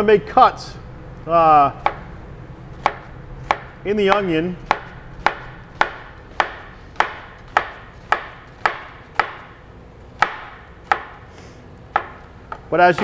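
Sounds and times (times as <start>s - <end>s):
knife slicing onion on cutting board: 2.8s - 9.4s.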